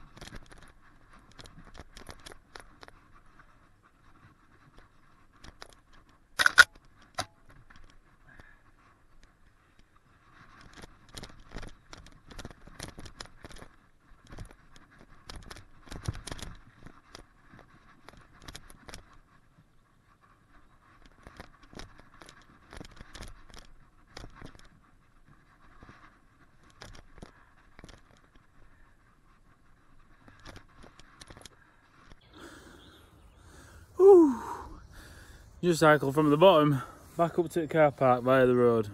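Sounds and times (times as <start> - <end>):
bike rattling over rocks: 10.5 - 19.2.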